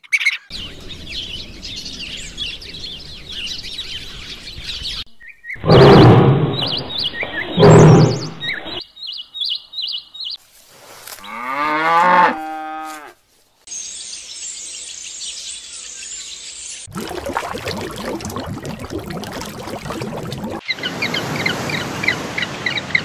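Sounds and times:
bird chirps: 0.1s - 10.4s
harsh animal calls: 5.6s - 8.8s
cow mooing: 11.3s - 13.2s.

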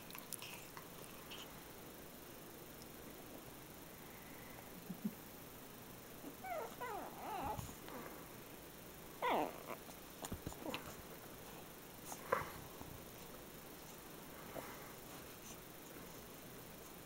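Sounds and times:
puppy whining and yipping: 6.3s - 7.7s, 9.2s - 9.8s.

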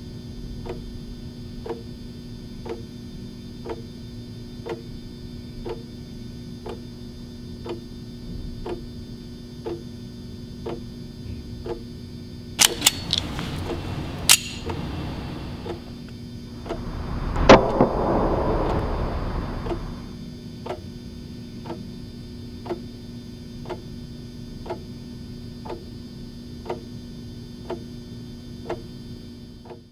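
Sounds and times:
loud crack: 12.6s - 15.9s, 16.5s - 20.2s
low hum: 12.6s - 20.2s.

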